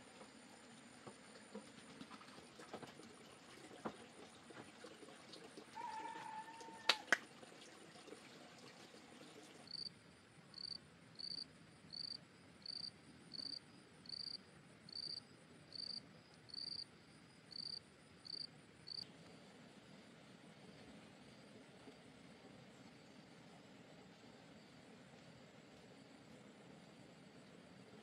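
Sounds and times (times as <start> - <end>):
faint background hiss: 0.0 - 28.0
cricket chirping: 9.7 - 20.0.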